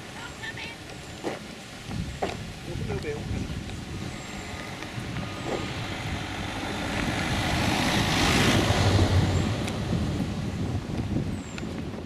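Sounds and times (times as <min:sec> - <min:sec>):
vehicle passing by: 0:03.7 - 0:11.3.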